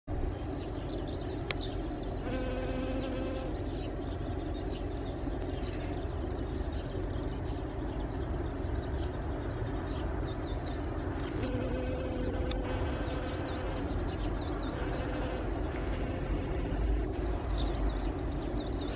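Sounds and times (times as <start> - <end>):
honeybee buzzing: 2.2 - 3.6, 11.3 - 14.1, 14.7 - 17.2.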